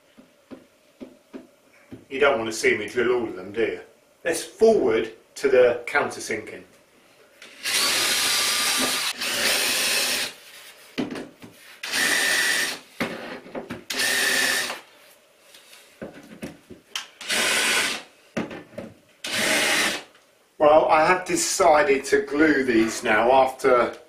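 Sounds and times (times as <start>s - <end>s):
cordless drill whirring: 7.4s - 10.4s, 11.8s - 12.8s, 13.9s - 14.8s, 17.2s - 18.0s, 19.2s - 20.0s.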